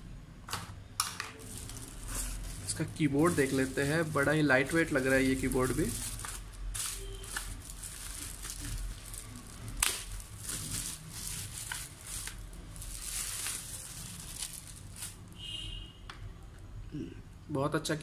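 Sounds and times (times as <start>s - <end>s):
plastic bag crinkling: 1.4s - 15.4s.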